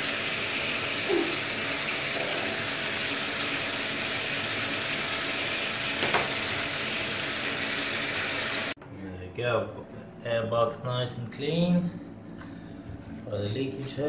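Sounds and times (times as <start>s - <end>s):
shower water spraying on plastic: 0.0s - 8.8s.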